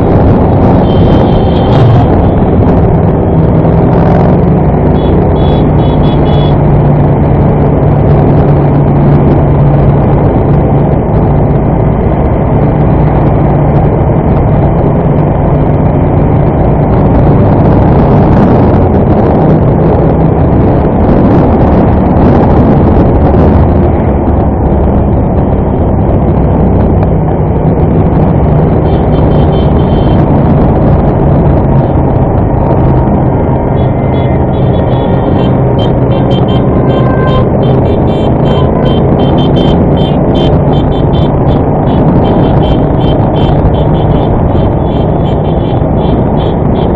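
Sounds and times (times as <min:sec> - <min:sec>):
motorcycle engine running: 0:00.0 - 0:07.8, 0:26.8 - 0:46.9
wind rush on microphone: 0:00.0 - 0:46.9.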